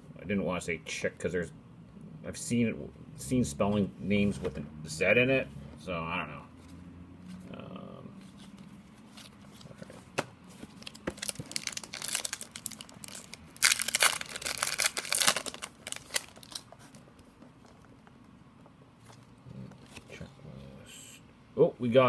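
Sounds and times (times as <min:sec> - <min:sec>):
wrapper tearing and crinkling: 0:10.8 - 0:17.0.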